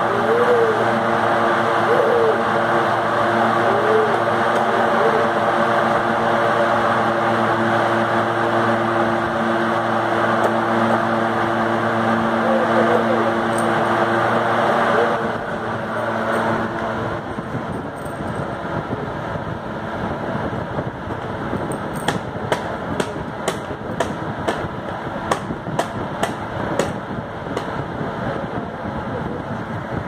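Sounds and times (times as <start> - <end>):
steady background noise: 0.0 - 30.0.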